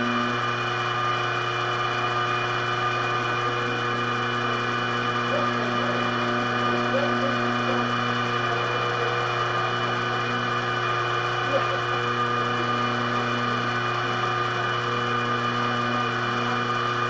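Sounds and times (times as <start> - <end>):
mill spindle motor whine: 0.0 - 17.0.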